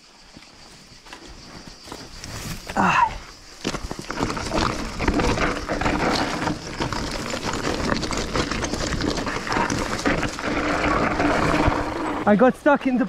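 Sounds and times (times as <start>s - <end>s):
tyres crunching on loose stone: 2.6s - 13.0s
bike rattling and knocking: 3.6s - 13.0s.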